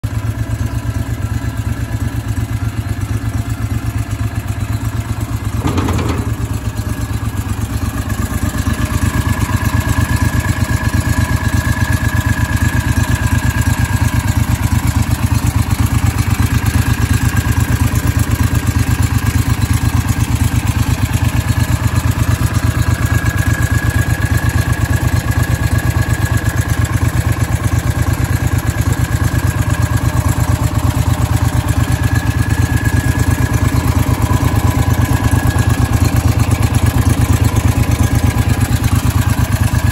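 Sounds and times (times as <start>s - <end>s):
engine idling: 0.0s - 39.9s
brief knock: 5.6s - 6.9s.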